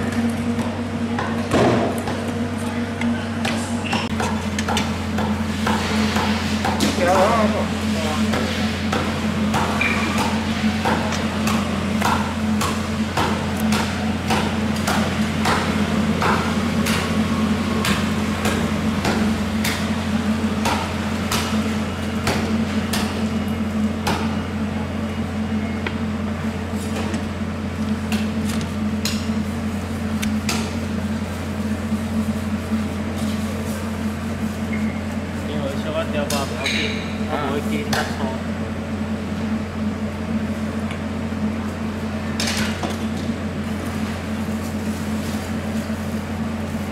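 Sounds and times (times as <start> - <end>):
steady low hum: 0.0 - 46.9.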